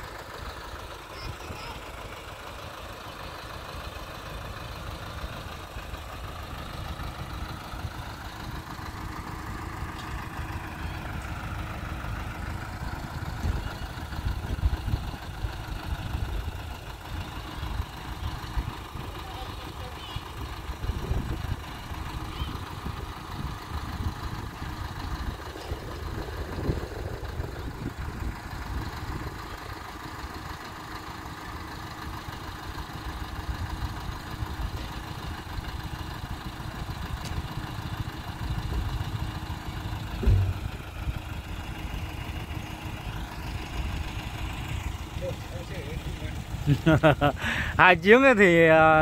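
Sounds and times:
heavy vehicle engine idling: 0.0s - 49.0s
loud thump: 40.2s - 40.8s.

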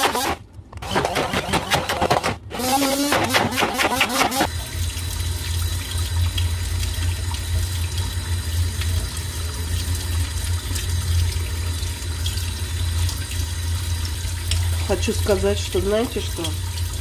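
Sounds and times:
immersion blender running: 0.0s - 4.5s.

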